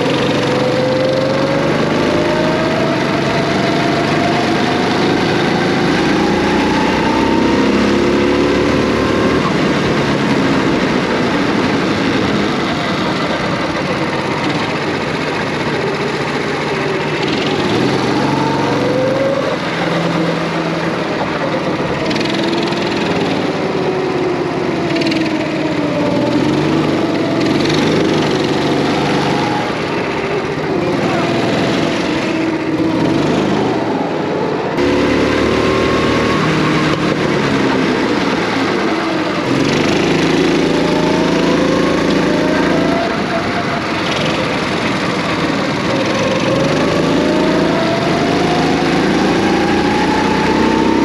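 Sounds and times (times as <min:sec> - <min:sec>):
go-kart engines revving: 0:00.0 - 0:51.0.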